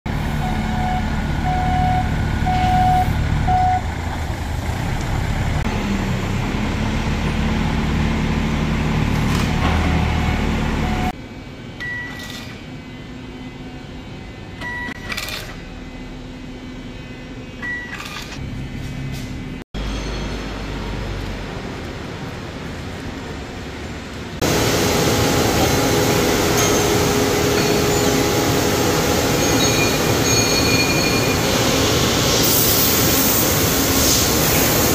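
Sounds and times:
forklift engine running: 0.1 - 11.2, 24.4 - 32.4
warning beep: 0.4 - 3.8
machining hall hum: 5.7 - 34.9
label printer beeps and clicks: 14.6 - 15.5.

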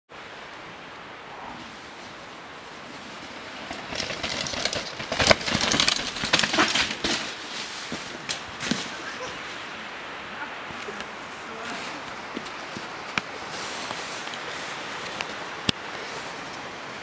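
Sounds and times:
steady hiss: 0.2 - 17.0
bike tyres clattering on rock: 3.2 - 9.1
chain and frame rattle: 3.6 - 7.2
bike landing knock: 3.7 - 7.4.

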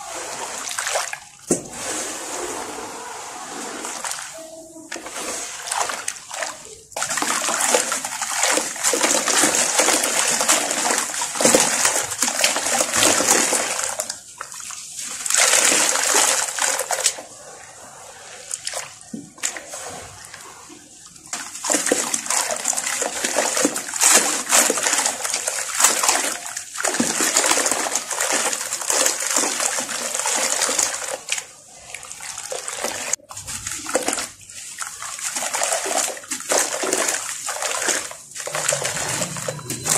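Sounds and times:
hands splashing through wet cement: 4.9 - 17.2, 21.3 - 31.5.

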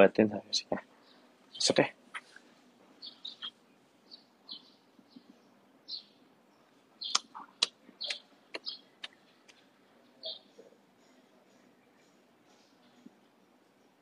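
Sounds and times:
bird chirping: 0.6 - 14.0
sharp clicks: 7.1 - 9.6.

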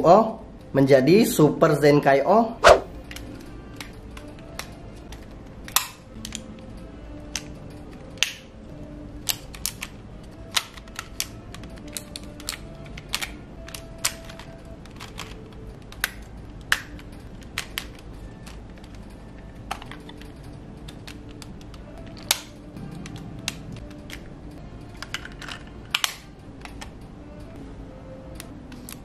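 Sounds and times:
faint background music: 0.0 - 29.0
plastic toy parts clicking: 3.1 - 6.5, 9.2 - 24.3, 25.0 - 27.0.

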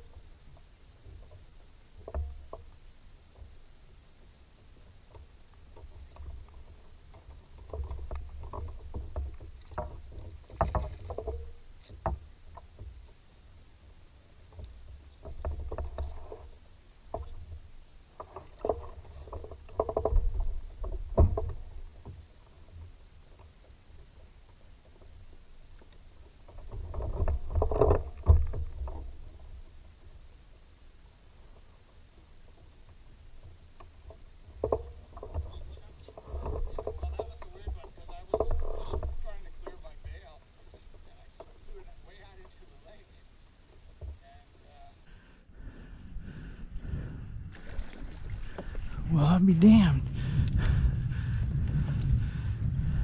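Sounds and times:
paddle knocks and clicks: 5.1 - 13.1
paddle strokes in water: 13.8 - 44.8, 47.5 - 49.1.

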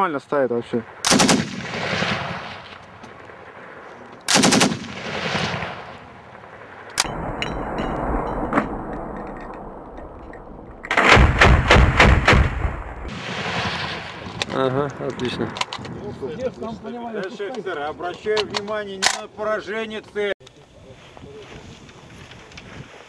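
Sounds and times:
automatic rifle bursts: 1.1 - 1.6, 4.3 - 5.5.

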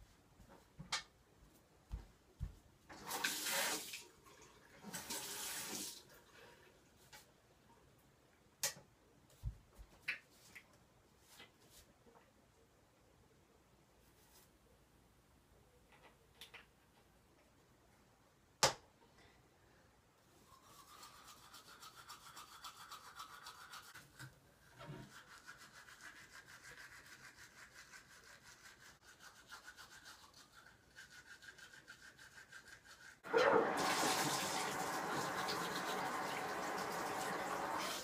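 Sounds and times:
tap water running into basin: 2.9 - 6.2, 33.2 - 38.0
toothbrush scrubbing teeth: 20.4 - 33.2.

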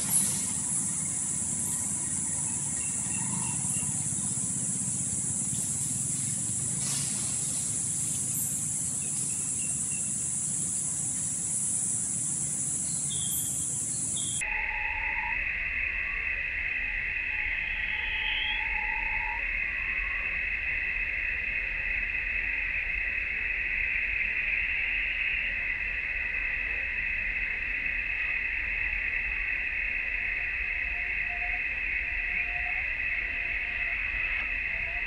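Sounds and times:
low hum: 0.0 - 14.4
insect chorus shrilling: 0.0 - 21.2.

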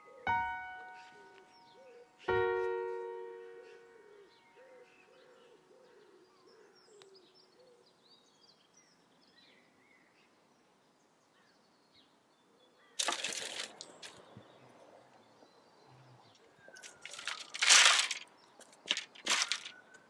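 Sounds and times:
bird hooting coos: 3.6 - 7.8.

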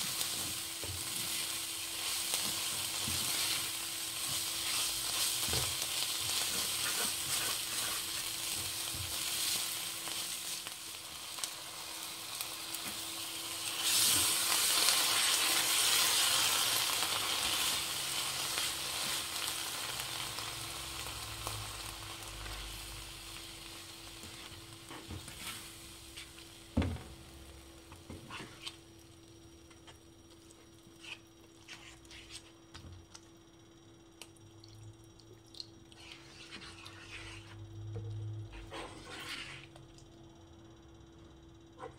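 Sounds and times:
vegetables sizzling in a pan: 0.0 - 28.8.

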